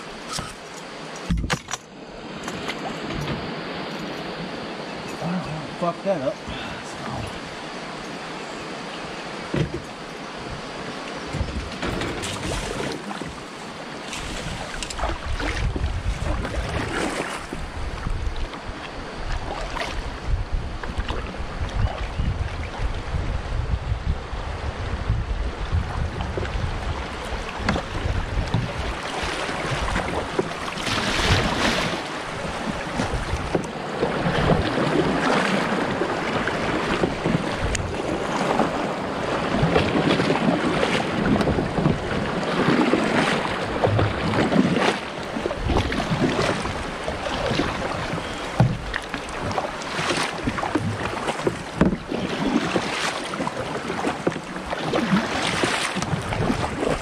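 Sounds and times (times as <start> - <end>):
kayak paddle splashing: 0.0 - 23.2, 24.6 - 57.0
water washing along hull: 0.0 - 57.0
wind noise on microphone: 9.5 - 13.4, 14.2 - 57.0.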